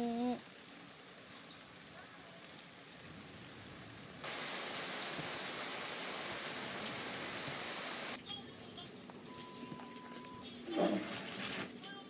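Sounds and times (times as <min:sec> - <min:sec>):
steady hiss like rain: 0:00.3 - 0:08.8.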